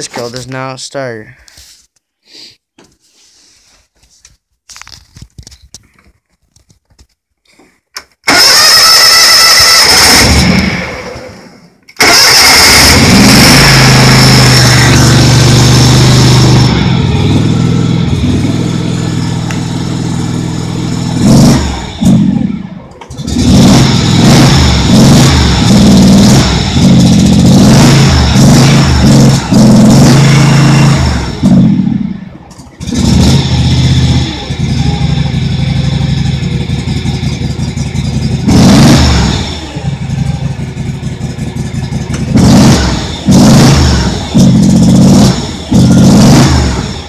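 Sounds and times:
starter motor cranking: 8.2s - 10.8s, 12.0s - 15.6s
lawn tractor engine running: 8.2s - 11.3s, 11.9s - 47.0s.

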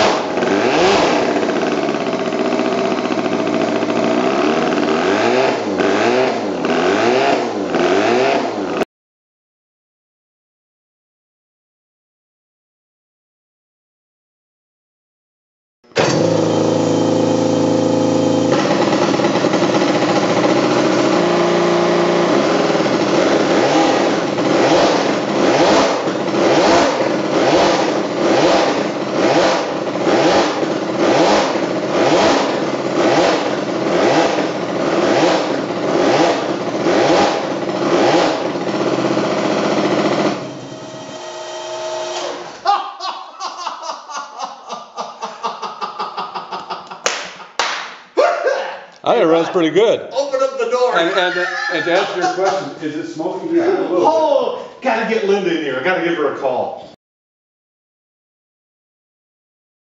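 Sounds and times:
motorcycle engine revving: 0.0s - 8.9s, 16.0s - 42.6s.

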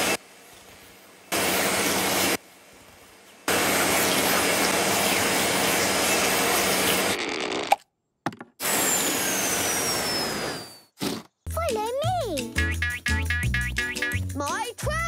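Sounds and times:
vacuum cleaner motor rushing: 3.5s - 7.5s, 8.6s - 10.9s.

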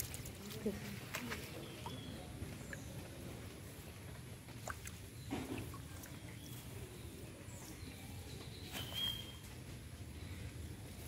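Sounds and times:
soft splash: 4.5s - 6.2s.

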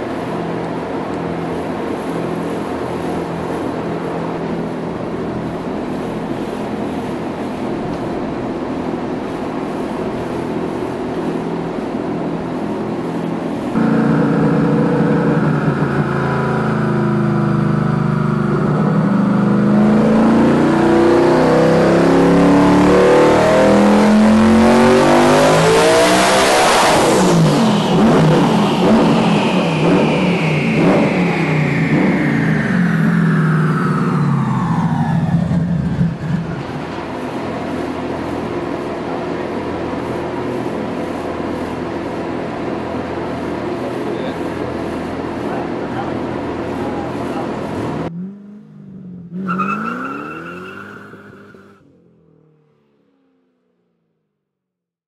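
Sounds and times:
high whine falling in pitch: 11.4s - 38.8s
car engine revving: 13.7s - 37.2s, 46.8s - 53.2s.

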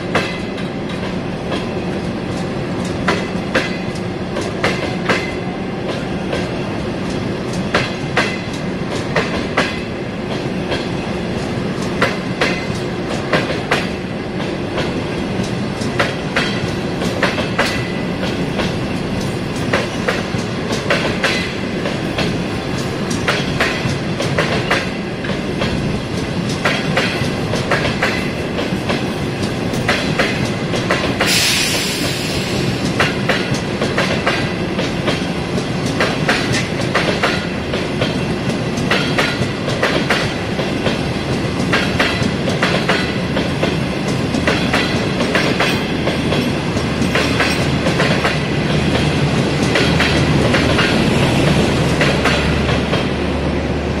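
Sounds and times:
train wheels clicking over rail joints: 0.0s - 53.3s
train rumble: 0.0s - 54.0s
short hiss: 31.3s - 32.6s.

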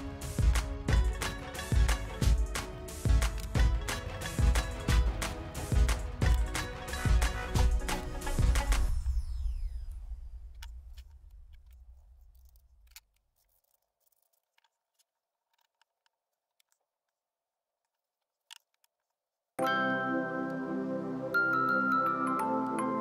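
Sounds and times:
background music: 0.0s - 10.5s, 19.6s - 23.0s
wooden toy parts clicking: 0.9s - 8.0s, 10.5s - 19.3s.

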